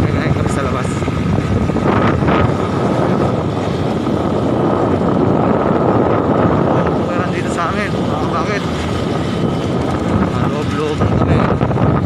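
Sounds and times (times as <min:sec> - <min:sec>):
motorcycle engine running: 0:00.0 - 0:12.0
wind rushing over microphone: 0:00.0 - 0:12.0.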